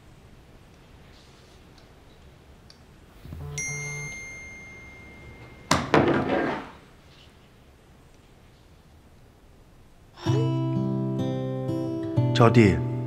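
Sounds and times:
phone notification ding: 3.4s - 5.9s.

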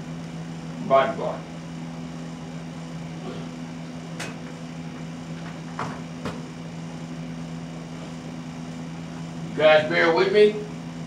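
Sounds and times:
low equipment hum: 0.0s - 11.0s.

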